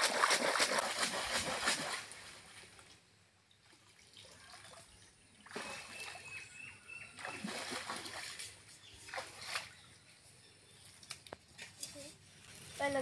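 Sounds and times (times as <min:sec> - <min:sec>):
water splashing and dripping: 0:00.0 - 0:06.4, 0:07.1 - 0:10.0
person wading through water: 0:03.6 - 0:10.0.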